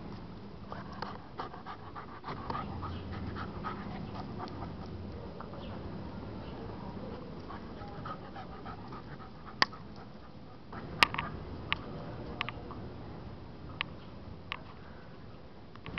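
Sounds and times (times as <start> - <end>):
dog panting: 0.7 - 5.0, 7.1 - 11.4.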